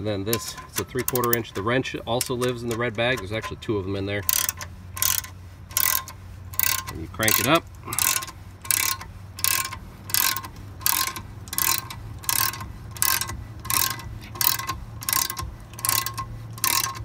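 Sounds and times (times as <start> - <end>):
ratchet wrench clicking: 0.2 - 17.0.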